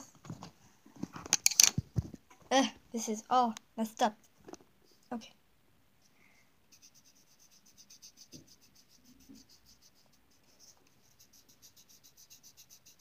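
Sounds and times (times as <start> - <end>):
pencil scratching on paper: 6.7 - 13.0.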